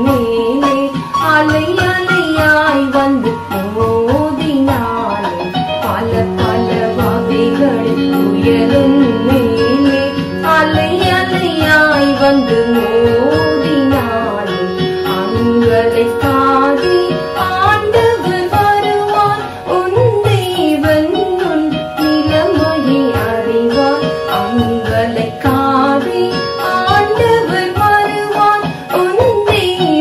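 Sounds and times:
devotional song with gliding notes: 0:00.0 - 0:30.0.

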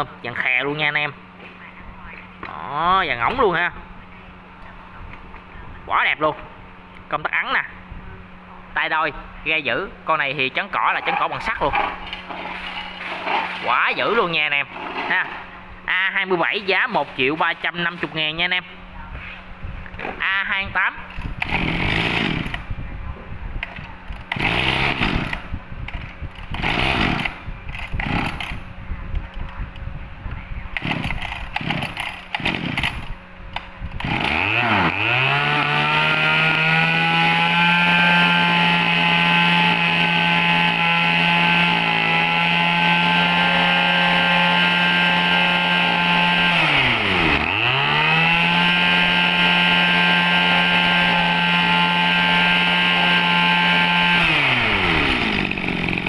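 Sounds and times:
brush-cutter engine running: 0:11.0 - 0:15.4, 0:21.0 - 0:22.8, 0:23.6 - 0:28.7, 0:30.8 - 0:56.0
brush-cutter engine pull-starting: 0:11.2 - 0:15.4, 0:21.1 - 0:22.7, 0:23.6 - 0:28.6, 0:30.8 - 0:56.0.

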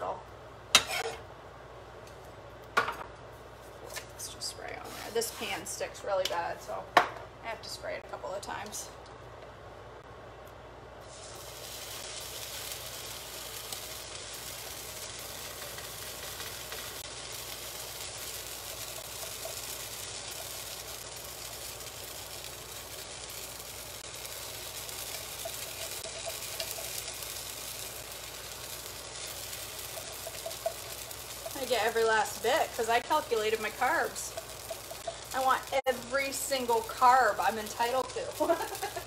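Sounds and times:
pancakes sizzling in frying pan: 0:11.0 - 0:39.0.

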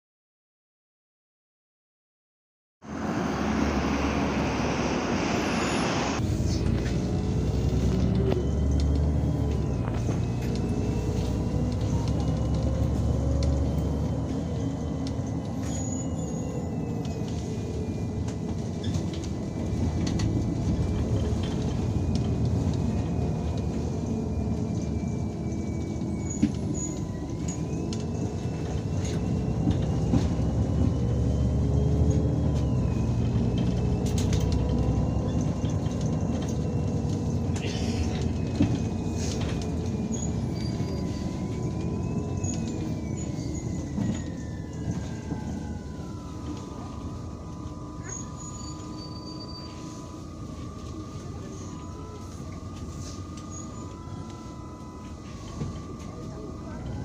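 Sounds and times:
bus diesel engine drone: 0:02.8 - 0:57.0
passing traffic hiss: 0:02.9 - 0:06.6.

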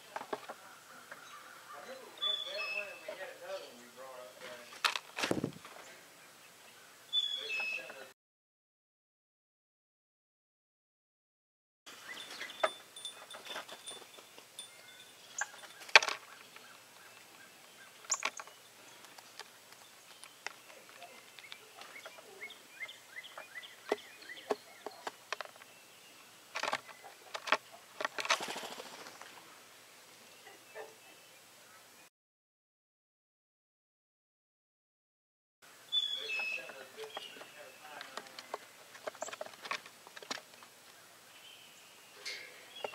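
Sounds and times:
faint bird chirps: 0:00.6 - 0:03.8, 0:05.8 - 0:08.1, 0:35.9 - 0:38.0
wings flapping: 0:04.7 - 0:05.8, 0:26.5 - 0:29.4.

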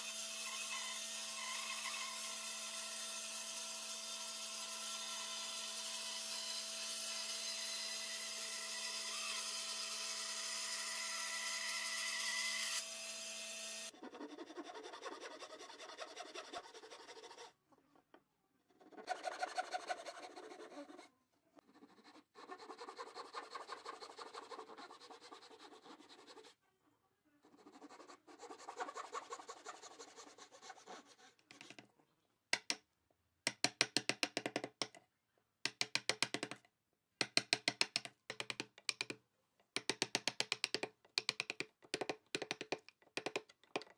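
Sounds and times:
chisel struck chopping wood: 0:35.7 - 0:36.6, 0:37.2 - 0:39.2, 0:39.8 - 0:43.9.

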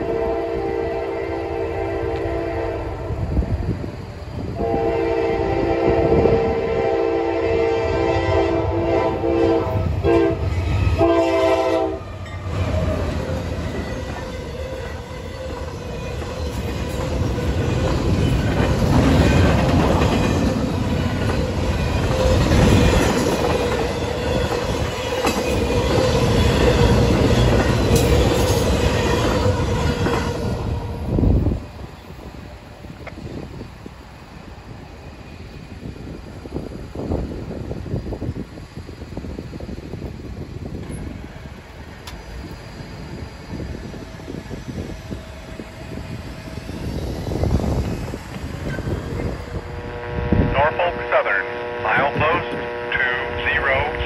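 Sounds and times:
train air horn blasts: 0:00.0 - 0:03.1, 0:04.6 - 0:12.1, 0:28.9 - 0:31.0, 0:49.5 - 0:54.0
train rumble and wheel clatter: 0:00.0 - 0:54.0.

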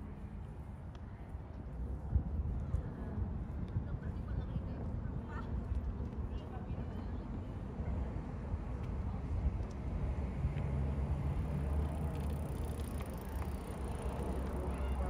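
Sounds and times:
passing vehicle engine rumble: 0:08.2 - 0:15.0.

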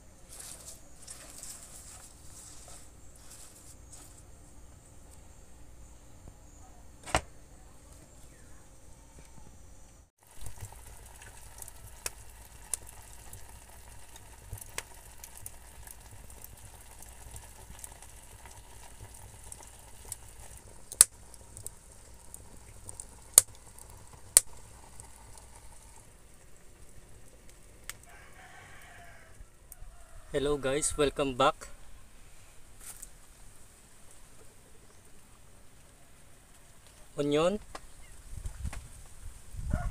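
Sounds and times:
broth bubbling and sizzling: 0:10.1 - 0:30.2
sharp pops and crackles: 0:10.2 - 0:28.2, 0:36.5 - 0:39.2.

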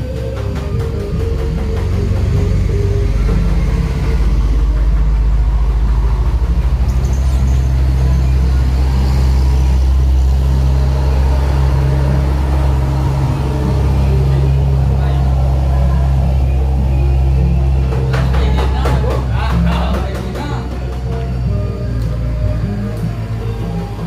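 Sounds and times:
diesel trucks passing: 0:00.0 - 0:24.0.

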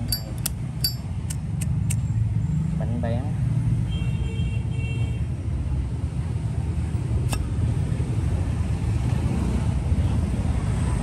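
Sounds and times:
sharp click: 0:00.0 - 0:02.0
road traffic rumble: 0:00.0 - 0:11.0.

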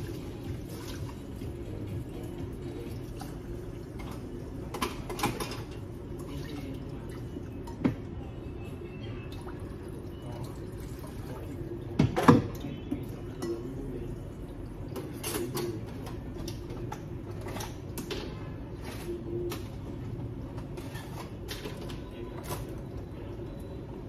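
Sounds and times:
steady low hum: 0:00.0 - 0:24.0
pan and utensils clattering: 0:04.0 - 0:05.8.

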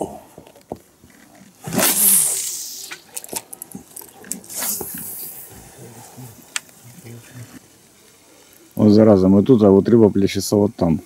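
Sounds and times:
short rush of noise: 0:01.6 - 0:03.1, 0:04.4 - 0:05.7
fishing rod swish: 0:01.6 - 0:03.2, 0:04.2 - 0:05.5.

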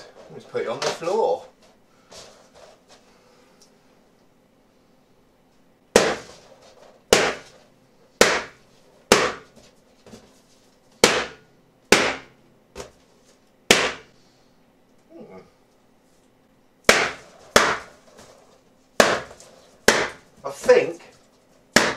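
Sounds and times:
balloons popping: 0:16.9 - 0:18.3.

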